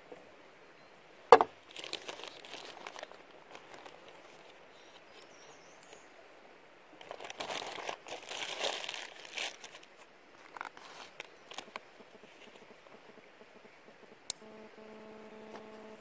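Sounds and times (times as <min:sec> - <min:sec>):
plastic packaging crinkling: 0:01.7 - 0:04.5, 0:07.0 - 0:11.8.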